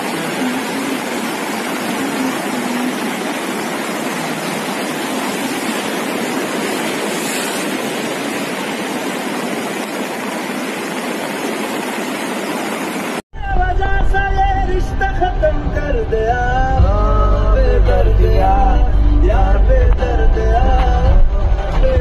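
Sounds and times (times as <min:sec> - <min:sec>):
floodwater rushing and churning: 0:00.0 - 0:13.2.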